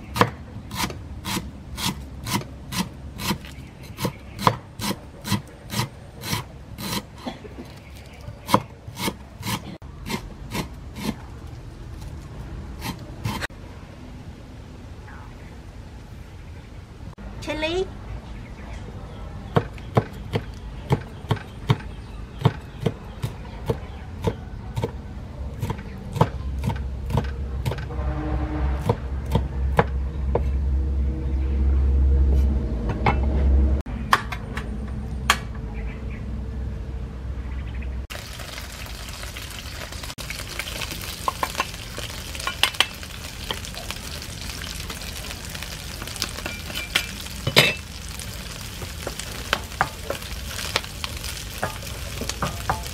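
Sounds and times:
food sizzling in hot oil: 38.1 - 52.9.

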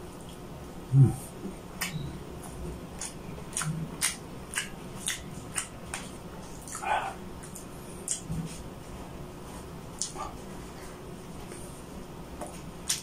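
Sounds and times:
wet chewing mouth clicks: 3.0 - 8.6, 10.0 - 10.2.

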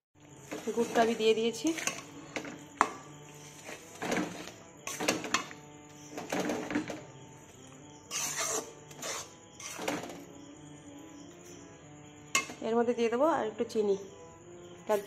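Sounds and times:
metal spatula scraping metal pan: 0.4 - 5.6, 8.1 - 10.2.

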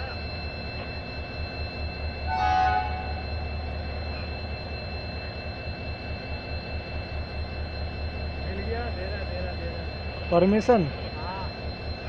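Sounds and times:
train horn blast: 2.3 - 3.2.

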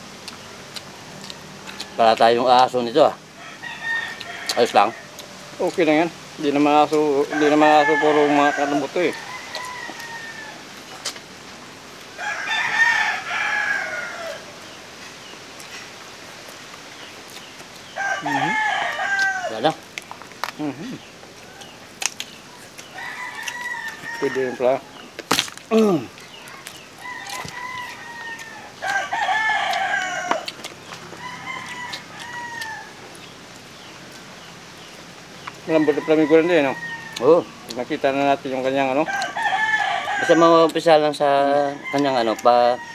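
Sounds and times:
distant rooster crowing: 1.0 - 5.5, 6.9 - 10.8, 12.1 - 14.8, 17.9 - 19.8, 22.8 - 25.2, 26.2 - 33.1, 35.6 - 42.9
rooster crowing: 3.2 - 5.2, 7.1 - 10.8, 12.1 - 14.7, 17.9 - 19.8, 22.8 - 25.2, 26.2 - 33.1, 35.7 - 42.9.

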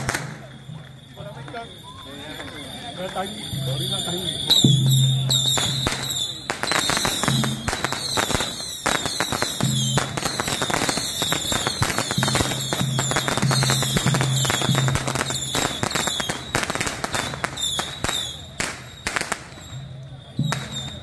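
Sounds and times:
firecrackers popping: 0.0 - 21.0.

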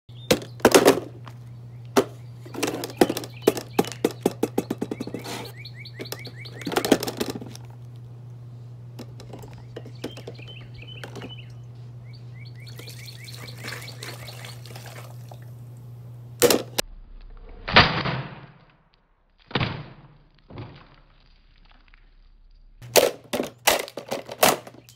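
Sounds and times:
birds chirping: 0.1 - 16.8, 24.0 - 24.9
steady low hum: 0.1 - 24.9
small knocks: 0.3 - 5.4, 9.0 - 11.6
plastic cracking: 22.8 - 24.9.

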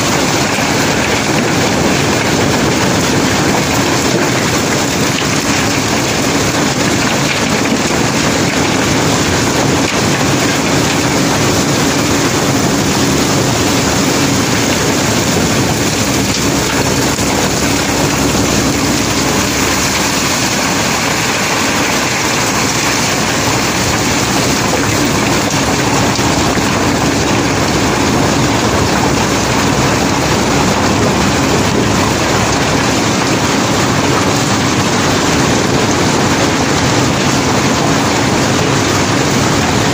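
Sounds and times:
loud machinery running: 0.0 - 39.9.

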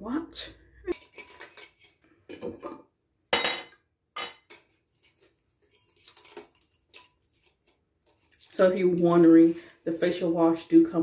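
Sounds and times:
bottles and jars clinking: 0.9 - 4.7.

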